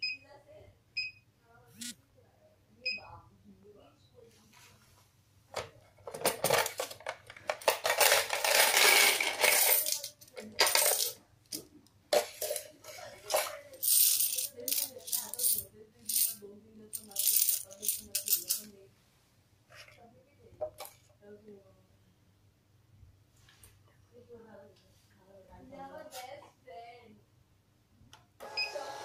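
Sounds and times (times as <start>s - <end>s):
coins rattling and clinking: 6.2s - 11.2s, 13.4s - 18.7s.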